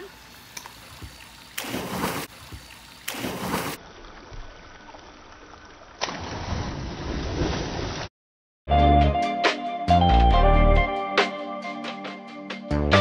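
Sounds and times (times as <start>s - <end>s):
water churning: 0.0s - 8.1s
diver splashing into pool: 1.6s - 3.8s.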